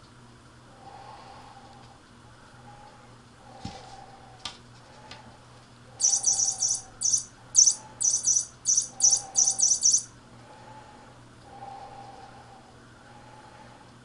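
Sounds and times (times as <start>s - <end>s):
high-pitched chirping bursts: 6.0s - 10.1s.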